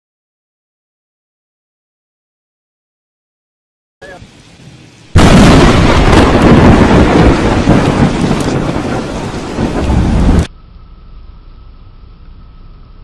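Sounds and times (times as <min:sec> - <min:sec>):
rain falling: 0:04.0 - 0:10.8
thunder crack and rumble: 0:05.1 - 0:10.5.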